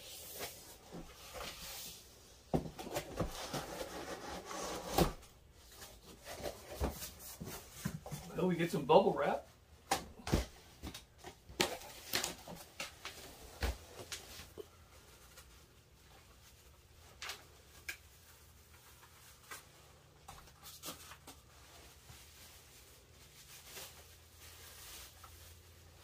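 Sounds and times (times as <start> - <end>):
bubble wrap crinkling: 11.0 - 19.8, 20.4 - 26.0.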